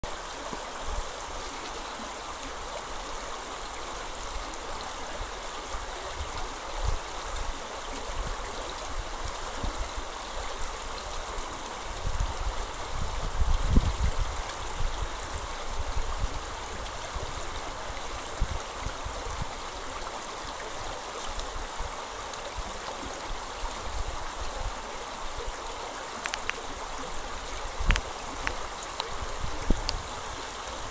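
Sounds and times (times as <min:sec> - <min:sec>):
brook babbling over stones: 0:00.0 - 0:30.9
faint clicks: 0:26.2 - 0:26.7, 0:27.8 - 0:29.2.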